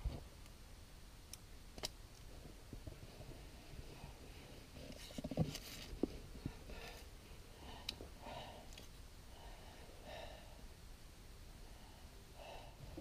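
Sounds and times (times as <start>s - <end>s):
man breathing heavily: 6.1s - 10.8s, 11.6s - 13.0s.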